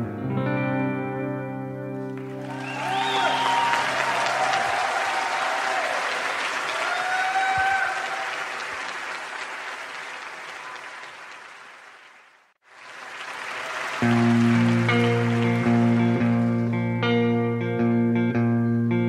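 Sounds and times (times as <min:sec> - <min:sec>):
guitar and bass playing: 0:00.0 - 0:02.4, 0:14.0 - 0:19.0
audience applauding: 0:02.0 - 0:16.9.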